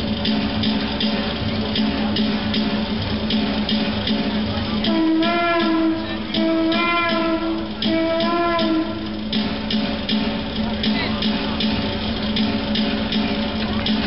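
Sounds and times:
percussion beats: 0:00.0 - 0:14.0
wind instrument melody: 0:04.6 - 0:09.7.

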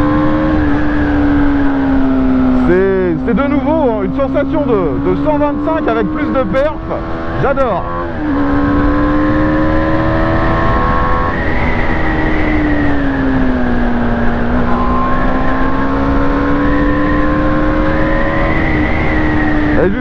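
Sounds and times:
motorcycle engine revving: 0:00.0 - 0:20.0
wind noise: 0:00.0 - 0:20.0.

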